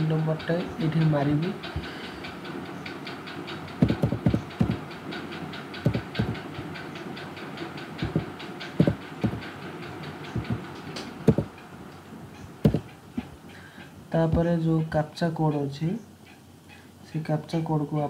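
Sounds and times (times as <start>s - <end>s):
steady background hum: 0.0s - 18.0s
keyboard keys typing: 3.8s - 4.8s, 5.8s - 6.5s, 8.0s - 9.5s, 10.3s - 10.7s, 11.3s - 11.5s, 12.6s - 12.9s.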